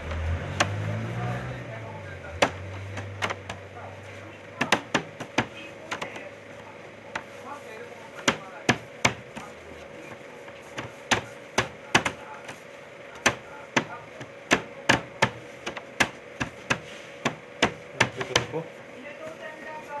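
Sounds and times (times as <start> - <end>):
dough knocking on metal table: 2.3 - 3.6, 4.6 - 6.3, 8.2 - 9.5, 10.7 - 12.6, 13.2 - 18.6.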